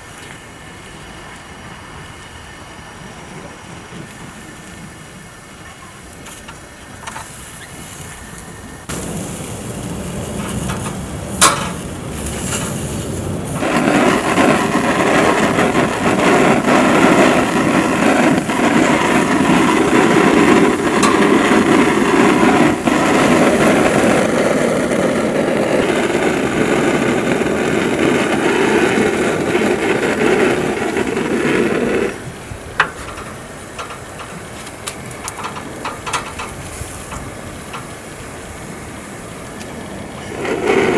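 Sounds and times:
gas burner flame: 0:00.0 - 0:40.9
tomato skins sizzling and popping: 0:08.8 - 0:31.3.

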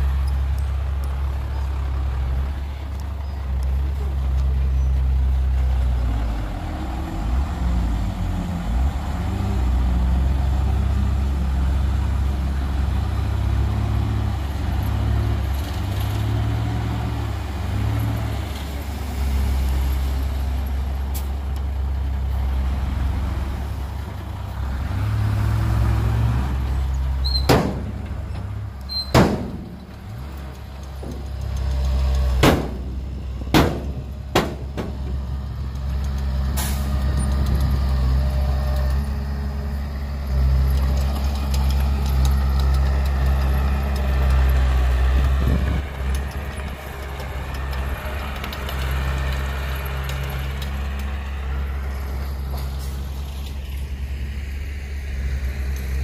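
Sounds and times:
sharp knocks: 0:32.4 - 0:32.9, 0:33.5 - 0:35.2.

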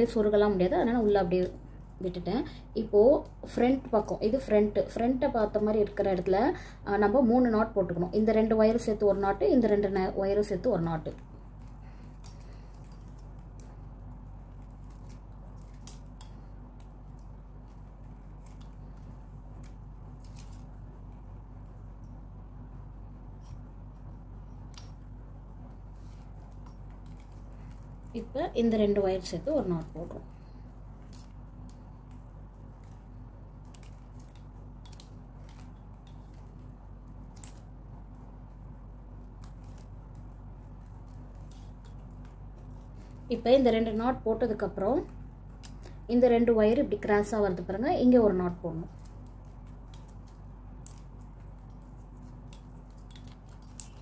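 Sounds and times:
steady low hum: 0:00.0 - 0:54.0
plastic wire clicking and rustling: 0:10.4 - 0:22.2, 0:23.3 - 0:46.0, 0:48.5 - 0:54.0.

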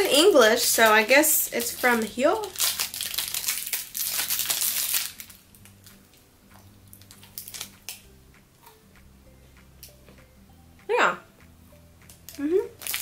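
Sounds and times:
plastic wrapper crinkling: 0:00.6 - 0:06.0, 0:06.9 - 0:08.0, 0:12.1 - 0:13.0.

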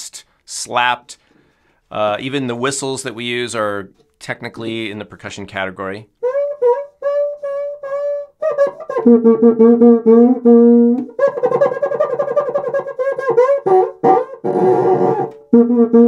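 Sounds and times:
friction drum squeaking rhythm: 0:11.0 - 0:16.0.

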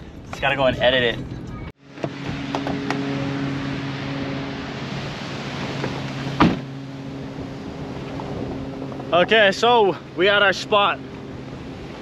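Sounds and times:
road and wind noise: 0:00.0 - 0:12.0
vehicle engine hum: 0:00.0 - 0:12.0.

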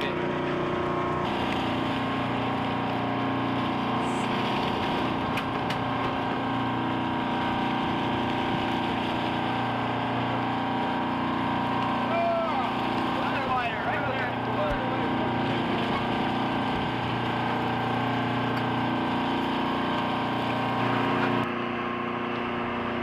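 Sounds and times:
boat engine humming: 0:00.0 - 0:23.0
sea wash: 0:00.0 - 0:23.0.

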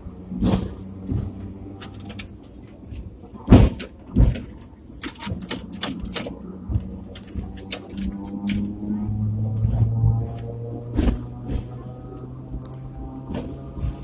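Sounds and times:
tram low hum: 0:00.0 - 0:14.0
sharp clicks and rattles: 0:01.1 - 0:08.8
heavy clunks: 0:03.5 - 0:08.8.

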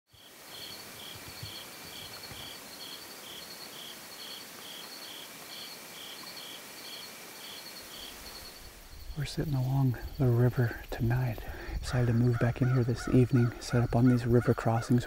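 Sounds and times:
high-pitched insect trill: 0:00.1 - 0:10.4
crickets chirping: 0:00.1 - 0:15.0
soft background hiss: 0:00.2 - 0:15.0.

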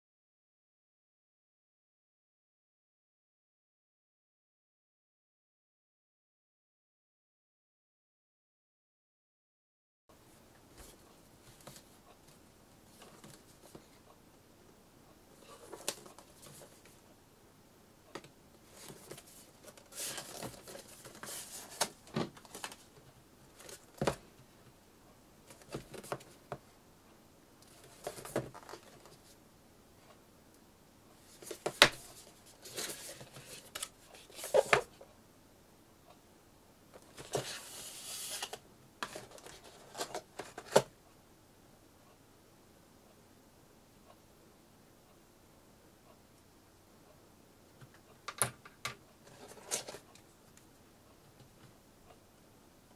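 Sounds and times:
cardboard scraping and rustling: 0:18.7 - 0:22.8, 0:27.7 - 0:29.2, 0:31.3 - 0:34.9, 0:37.0 - 0:40.9, 0:49.3 - 0:50.1.

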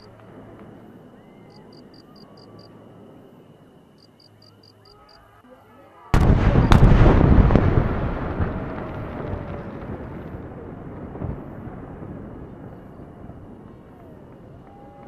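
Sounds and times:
firework crackle and rumble: 0:00.0 - 0:03.8, 0:06.1 - 0:15.0
firework boom: 0:06.2 - 0:14.6
firework sharp crack: 0:06.2 - 0:15.0.

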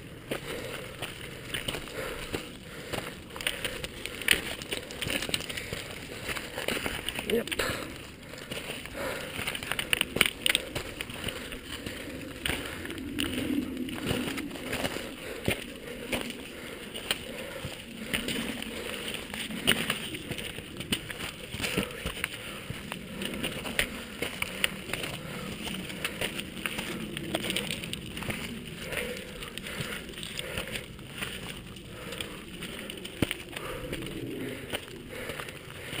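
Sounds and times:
footsteps on loose stones: 0:00.0 - 0:36.0
dog paws on stones: 0:00.2 - 0:36.0.

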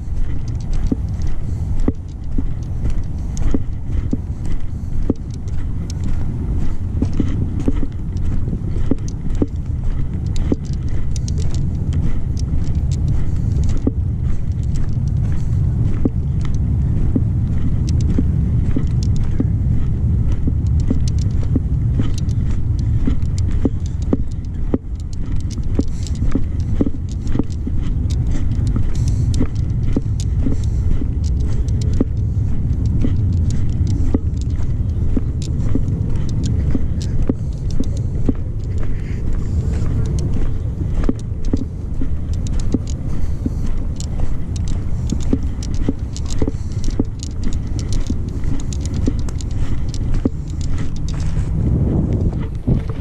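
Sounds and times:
footsteps on dirt path: 0:00.0 - 0:53.0
wind rumbling on microphone: 0:00.0 - 0:53.0.

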